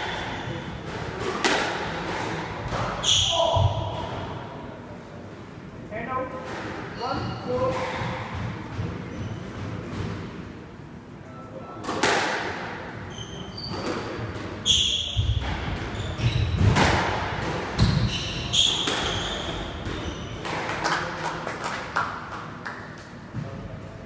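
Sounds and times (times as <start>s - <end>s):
squash ball cracking off racquets: 0.8s - 3.0s, 11.8s - 12.7s, 15.4s - 21.1s
sneakers squeaking on wooden floor: 6.9s - 8.2s, 9.0s - 9.6s, 13.0s - 16.7s, 17.7s - 20.4s.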